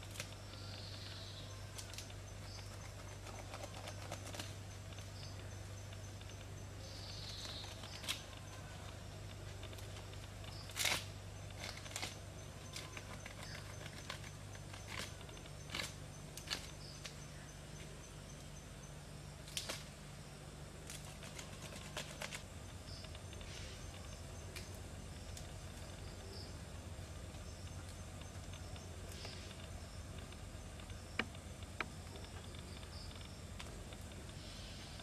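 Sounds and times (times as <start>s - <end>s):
faint high chirps: 0.0s - 35.0s
steady low hum: 0.0s - 35.0s
plant strips rustling and crackling: 7.2s - 17.9s.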